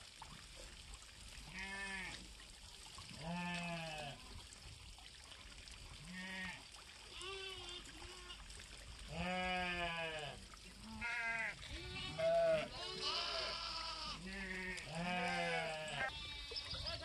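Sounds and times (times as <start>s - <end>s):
farm animals bleating: 1.4s - 2.2s, 3.2s - 4.2s, 6.0s - 8.5s, 9.1s - 17.0s.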